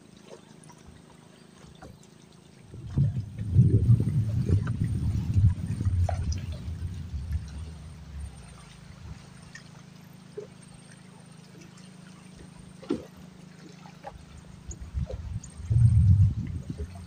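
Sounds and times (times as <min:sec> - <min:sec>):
low steady hum: 0:00.0 - 0:17.0
water trickling and lapping: 0:00.0 - 0:17.0
low rumble: 0:02.6 - 0:09.7, 0:14.3 - 0:17.0.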